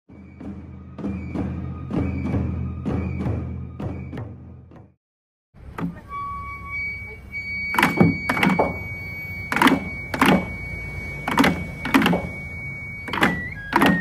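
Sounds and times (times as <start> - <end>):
bamboo flute high steady note: 5.8 - 14.0.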